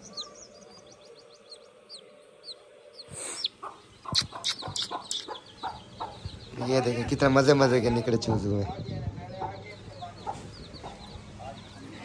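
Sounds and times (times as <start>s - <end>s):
chick peeping: 0.0s - 12.0s.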